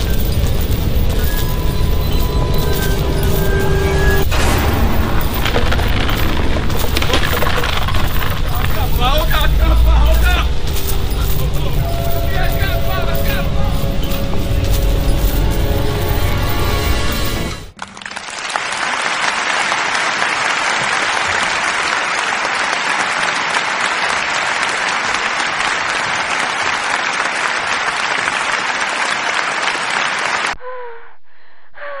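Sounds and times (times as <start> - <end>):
applause: 17.7 - 30.6.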